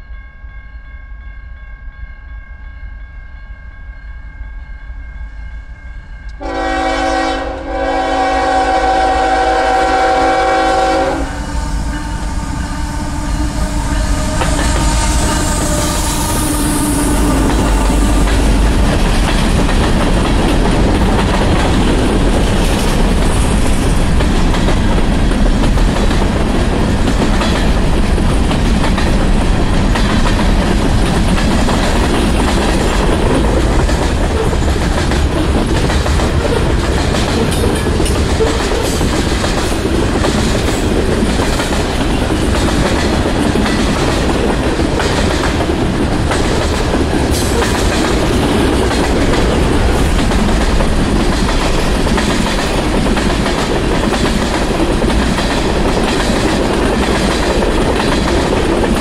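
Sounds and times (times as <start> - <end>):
crossing warning bell ringing: 0.0 - 6.7
train rumble: 4.4 - 59.0
locomotive horn blasts: 6.4 - 18.2
wheels clacking over rail joints: 17.2 - 59.0.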